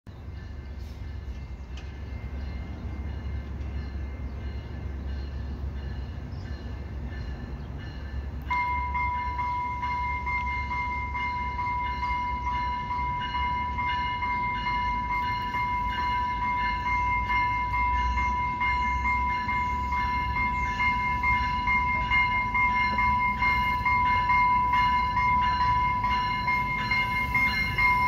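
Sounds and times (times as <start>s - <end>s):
train rumbling: 0.1s - 28.0s
faint rhythmic ringing: 0.2s - 28.0s
high-pitched warning tone: 8.0s - 28.0s.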